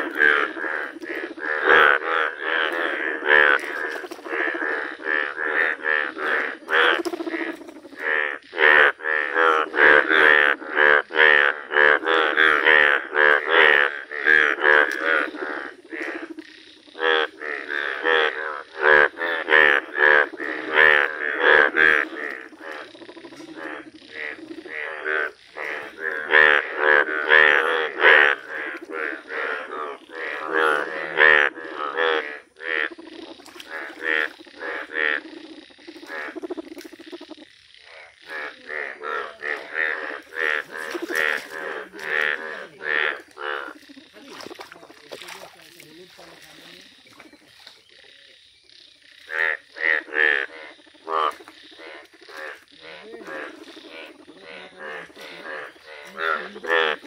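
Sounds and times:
chorus of frogs croaking: 0:00.0 - 0:57.0.

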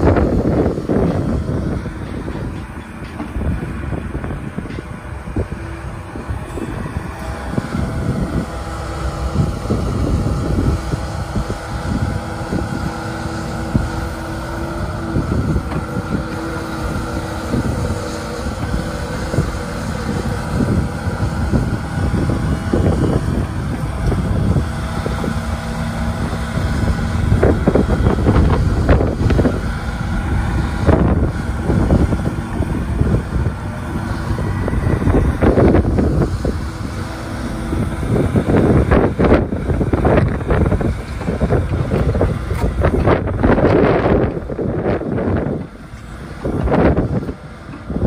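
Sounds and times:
excavator diesel engine running: 0:00.0 - 0:48.0
hydraulics swinging boom: 0:00.0 - 0:48.0
wind buffeting microphone: 0:00.0 - 0:48.0.

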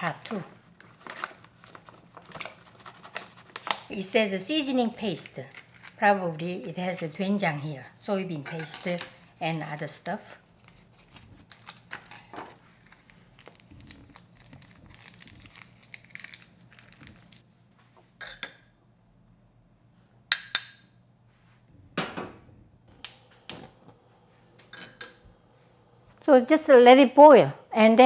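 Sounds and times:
pouch crinkling: 0:05.5 - 0:06.0, 0:10.7 - 0:17.4.

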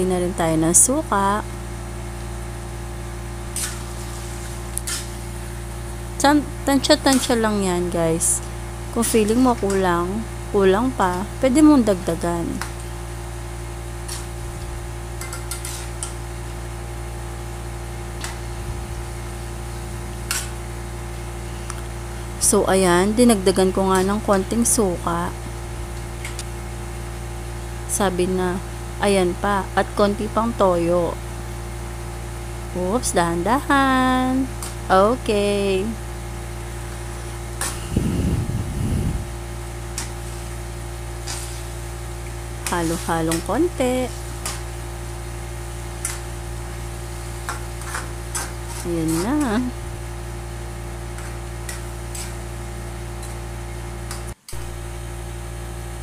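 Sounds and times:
low hum: 0:00.0 - 0:56.0
spatula stirring in wok: 0:13.8 - 0:16.3, 0:39.5 - 0:50.1, 0:51.0 - 0:53.4
metal spoon scraping a wok: 0:15.2 - 0:16.2, 0:41.2 - 0:41.8, 0:51.2 - 0:52.4
low rumble: 0:37.8 - 0:39.6.

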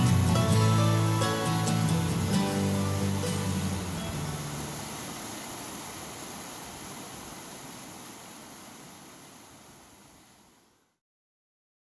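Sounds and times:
white water rushing over rocks: 0:00.0 - 0:10.8.

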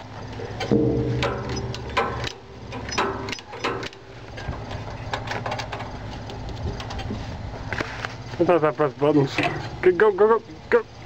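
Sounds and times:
clicks and knocks: 0:00.6 - 0:04.0.

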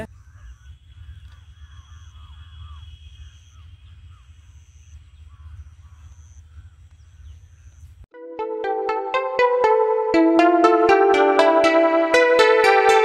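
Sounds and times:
birds calling: 0:00.0 - 0:08.0
electronic keyboard music: 0:08.1 - 0:13.0.

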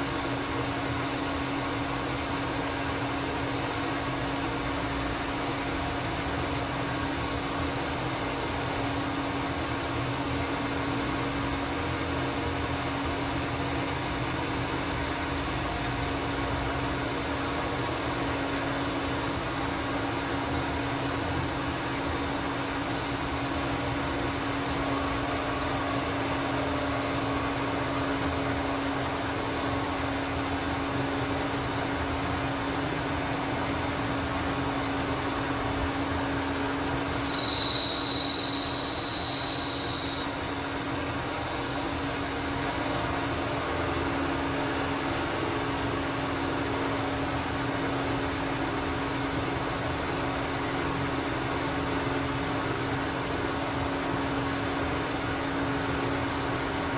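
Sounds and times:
high squeal: 0:37.0 - 0:40.4
milling machine humming: 0:37.0 - 0:40.8.

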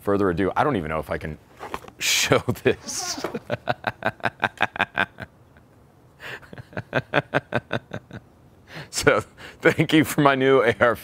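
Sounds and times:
man laughing hard: 0:02.7 - 0:05.3, 0:06.3 - 0:08.2.

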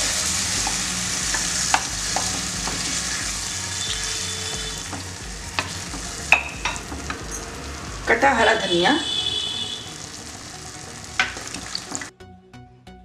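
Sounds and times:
food sizzling in a pan: 0:00.0 - 0:12.1
spatula knocking pan: 0:00.6 - 0:03.1, 0:04.6 - 0:07.2.

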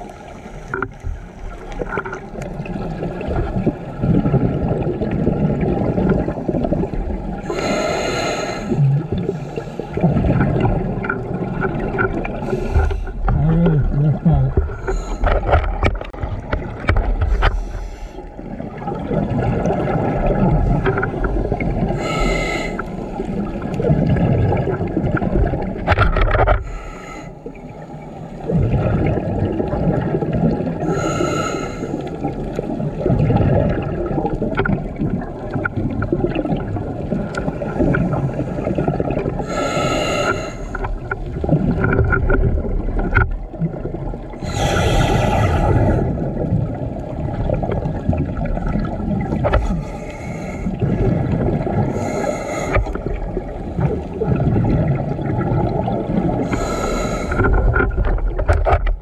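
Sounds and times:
exhaled bubbles gurgling: 0:00.0 - 0:59.0
regulator hissing inhalations: 0:07.5 - 0:08.8, 0:22.0 - 0:22.9, 0:39.5 - 0:40.8, 0:44.4 - 0:46.0, 0:52.0 - 0:52.9, 0:56.5 - 0:57.4.

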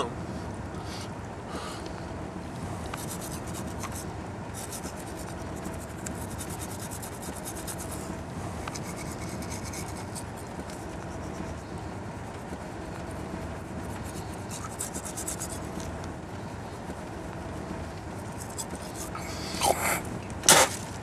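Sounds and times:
toothbrush scrubbing teeth: 0:04.6 - 0:08.0, 0:08.6 - 0:11.5, 0:13.8 - 0:15.9, 0:18.2 - 0:19.9.

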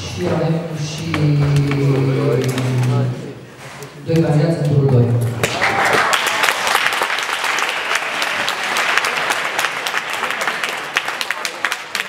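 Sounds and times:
audience applauding: 0:05.4 - 0:12.0.

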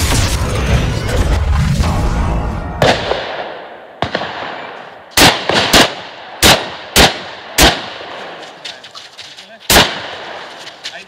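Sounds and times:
shotgun shots echoing: 0:02.8 - 0:08.6, 0:09.7 - 0:10.8.

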